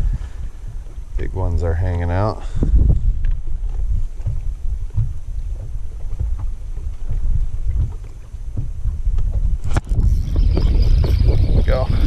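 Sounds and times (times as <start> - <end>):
faint lapping lake water: 0.0 - 12.0
wind buffeting microphone: 0.0 - 12.0.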